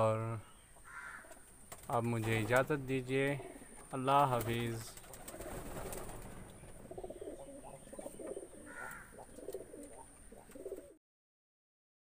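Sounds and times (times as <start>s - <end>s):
pigeons cooing: 2.0s - 11.0s
faint clicks: 8.9s - 10.9s.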